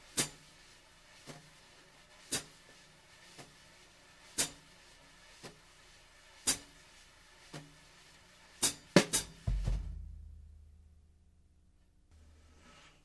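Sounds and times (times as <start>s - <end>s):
wire brushes swishing on snare drum: 0.0s - 9.7s
sharp snare hits: 8.6s - 10.0s.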